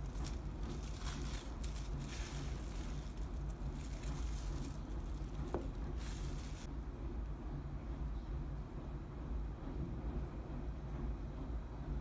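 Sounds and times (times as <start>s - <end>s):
plastic cling wrap crinkling: 0.0s - 6.7s
steady low hum: 0.0s - 12.0s.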